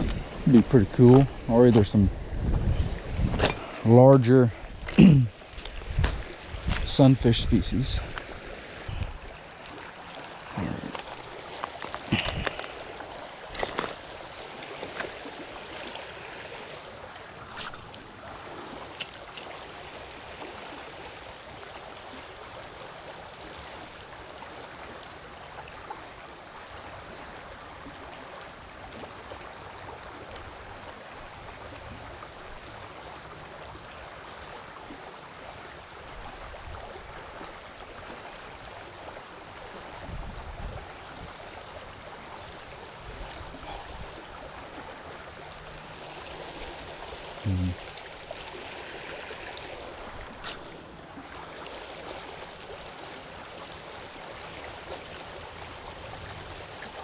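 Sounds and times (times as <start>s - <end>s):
wind buffeting microphone: 0.0s - 4.0s, 5.6s - 9.3s, 40.0s - 41.4s
creek water rushing: 0.0s - 57.0s.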